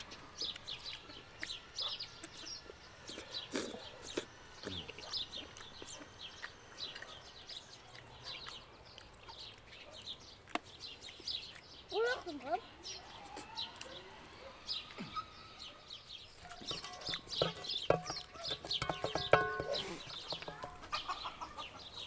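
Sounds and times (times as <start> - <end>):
birds chirping: 0.0 - 22.0
low clucking calls: 16.6 - 22.0.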